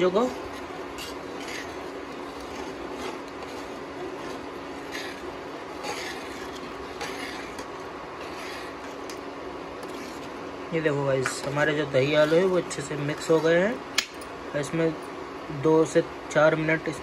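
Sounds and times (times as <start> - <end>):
spoon stirring thick gravy: 0.0 - 10.6, 11.2 - 13.9
induction cooktop hum: 0.0 - 17.0
spoon scraping pan side: 0.4 - 9.2.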